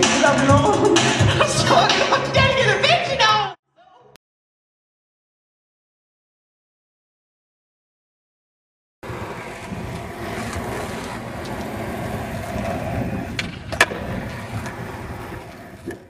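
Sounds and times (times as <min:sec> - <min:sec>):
skateboard wheels rumbling on asphalt: 0:09.0 - 0:16.0
skateboard clacks: 0:09.1 - 0:16.0.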